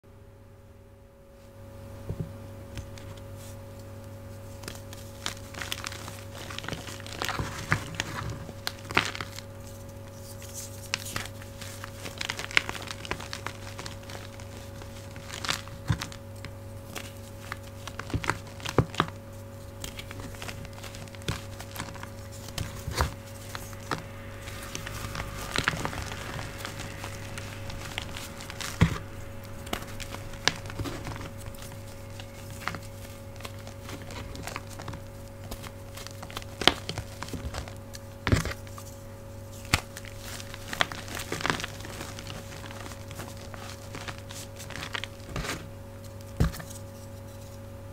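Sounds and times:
refrigerator hum: 0:00.0 - 0:47.9
fingers crumbling chalk: 0:02.8 - 0:47.6.

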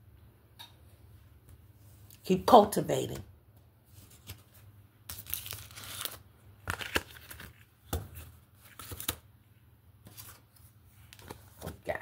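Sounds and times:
cards shuffling: 0:03.9 - 0:09.2.

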